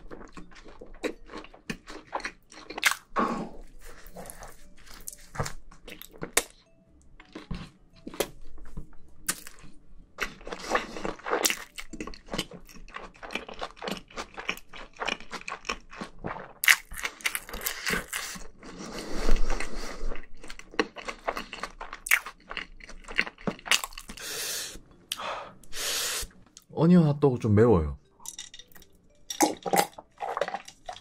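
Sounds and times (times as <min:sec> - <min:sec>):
person crunching crispy food: 0:00.0 - 0:06.6, 0:09.3 - 0:18.7, 0:19.3 - 0:24.3, 0:29.4 - 0:31.0.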